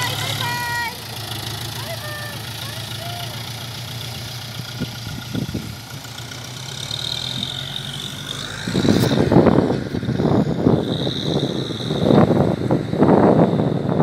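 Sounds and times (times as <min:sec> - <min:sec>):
tractor diesel engine running: 0:00.0 - 0:14.0
gusty wind on microphone: 0:04.7 - 0:05.8, 0:08.4 - 0:14.0.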